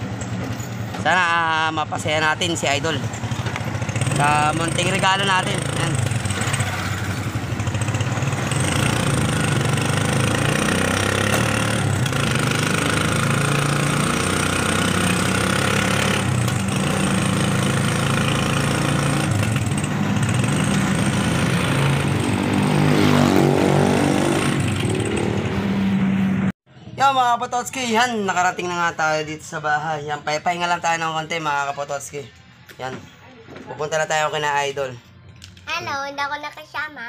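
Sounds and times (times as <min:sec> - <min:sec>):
motorcycle engine running: 0:02.9 - 0:25.8.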